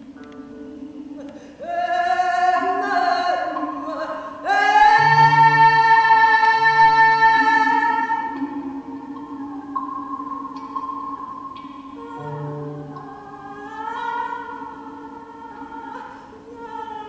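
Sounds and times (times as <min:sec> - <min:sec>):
person singing long notes: 0:00.0 - 0:17.0.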